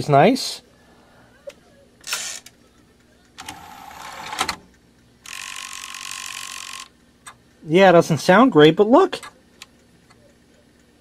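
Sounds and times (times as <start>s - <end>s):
disc drive click: 3.3s - 4.7s.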